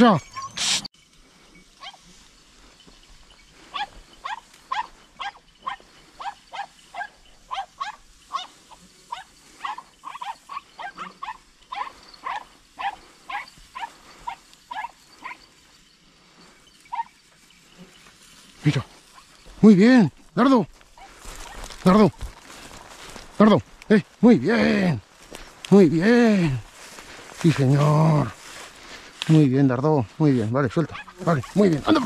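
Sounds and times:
animal yelping: 0:00.2 - 0:00.9, 0:01.8 - 0:02.3, 0:03.6 - 0:15.6, 0:16.6 - 0:18.1, 0:21.0 - 0:22.0, 0:30.8 - 0:32.0.

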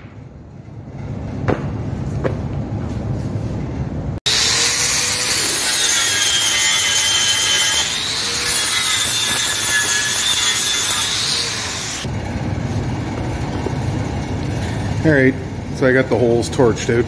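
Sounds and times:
angle grinder grinding steel: 0:04.3 - 0:12.1.

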